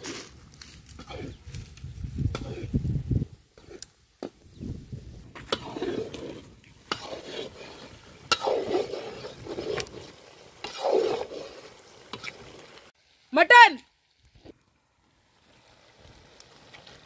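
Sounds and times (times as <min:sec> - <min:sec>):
spatula scraping frying onions: 0:00.0 - 0:12.9.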